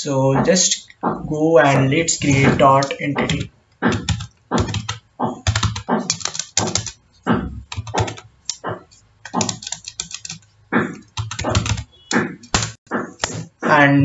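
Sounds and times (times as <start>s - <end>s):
keyboard key clacks: 2.2s - 7.0s, 7.7s - 10.4s.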